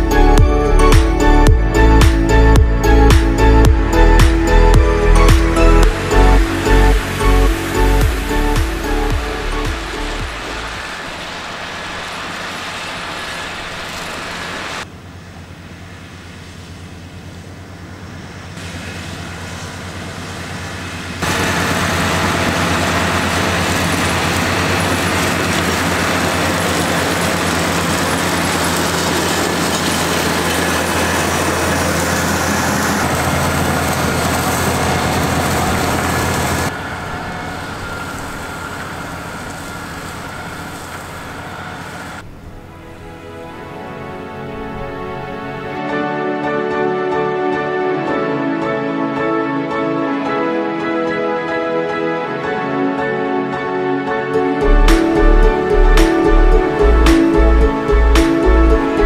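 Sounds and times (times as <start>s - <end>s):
tractor diesel engine running: 0.0s - 43.2s, 54.5s - 59.0s
flail mower spinning: 6.1s - 14.9s, 17.0s - 42.2s.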